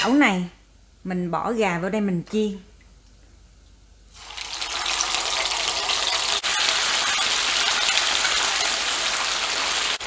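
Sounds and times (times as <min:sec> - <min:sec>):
chicken sizzling in hot oil: 0:04.1 - 0:10.0.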